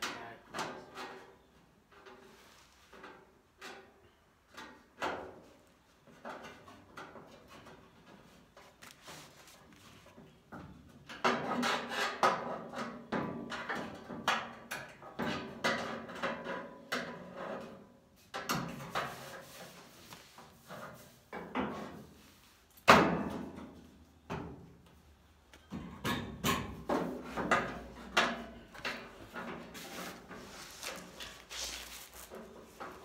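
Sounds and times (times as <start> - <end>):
metal clunks and scraping: 15.0 - 22.2, 25.6 - 33.0.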